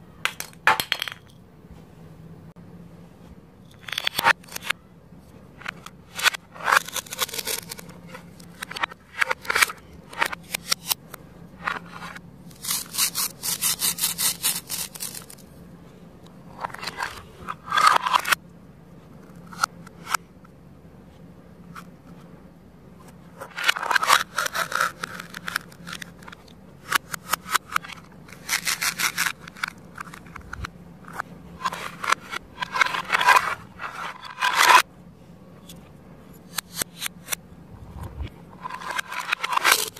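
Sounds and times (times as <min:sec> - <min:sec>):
velcro tearing: 0:12.6 - 0:15.4.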